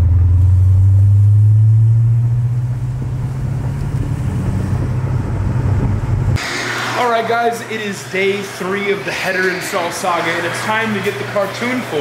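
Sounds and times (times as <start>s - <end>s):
deep car exhaust drone: 0.0s - 8.8s.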